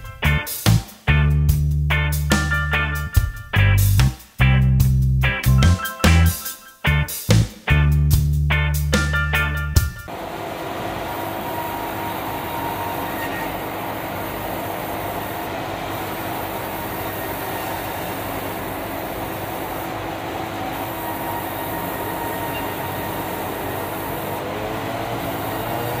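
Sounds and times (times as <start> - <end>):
band saw machinery running: 10.1 - 26.0.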